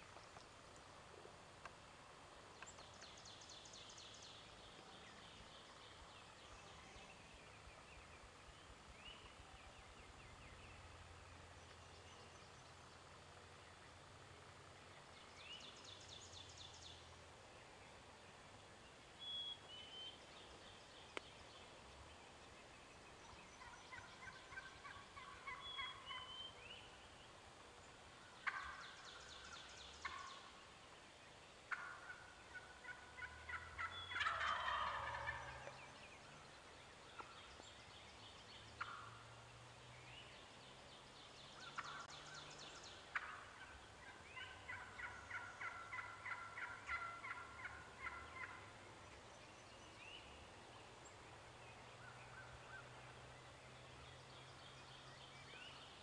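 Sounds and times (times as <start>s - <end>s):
turkey hen yelping: 23.6s - 26.3s, 28.4s - 28.8s, 30.0s - 30.3s, 31.7s - 35.8s, 43.1s - 48.7s
faint turkey gobbles: 28.4s - 28.8s, 31.7s - 35.7s, 43.1s - 48.7s.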